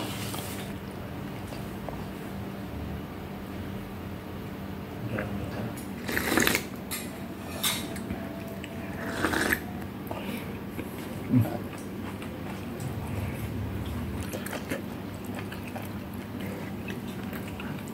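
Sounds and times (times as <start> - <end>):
chewing meat: 8.3 - 17.9
man sipping a drink: 8.9 - 11.6.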